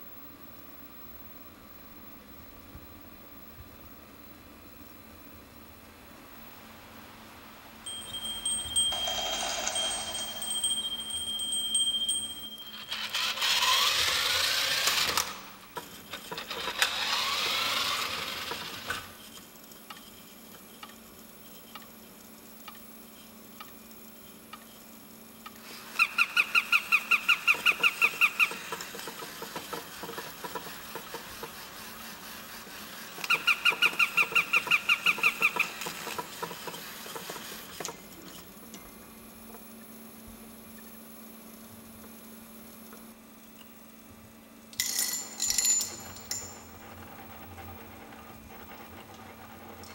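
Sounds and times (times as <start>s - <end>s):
chime: 7.9s - 13.4s.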